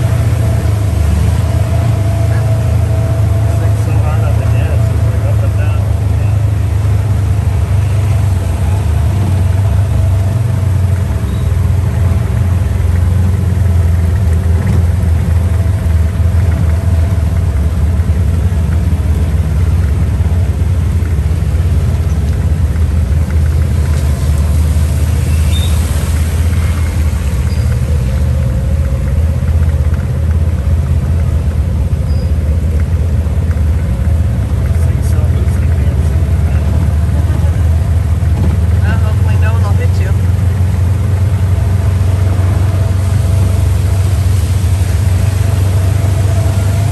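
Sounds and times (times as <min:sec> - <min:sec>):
buggy engine low rumble: 0:00.0 - 0:46.9.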